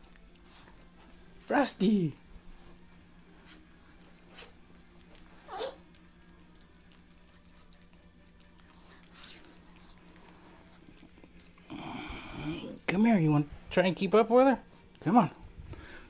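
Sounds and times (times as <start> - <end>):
low steady hum: 0.0 - 16.0
dog snorting: 2.6 - 6.0.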